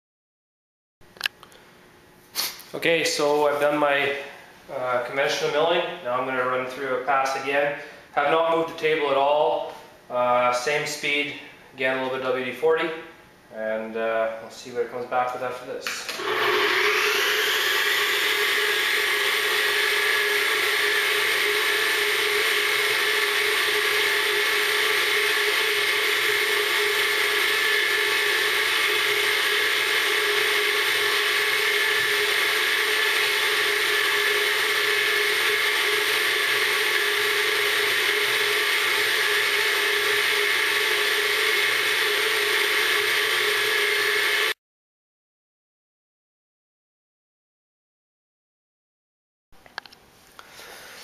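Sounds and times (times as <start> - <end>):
milling machine whirring: 16.1 - 44.5.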